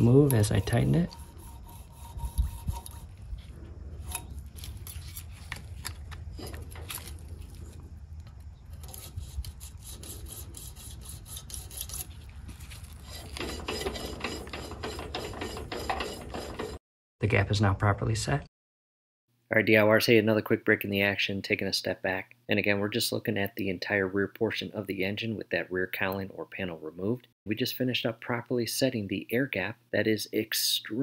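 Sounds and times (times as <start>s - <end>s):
metal gauge scraping and clicking: 0.0s - 3.1s, 12.8s - 16.8s.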